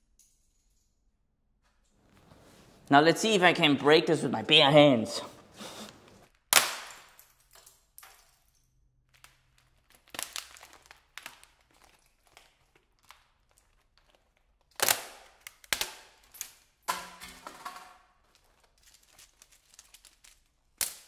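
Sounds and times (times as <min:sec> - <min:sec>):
plastic keyboard cracking and creaking: 0:09.2 - 0:16.3.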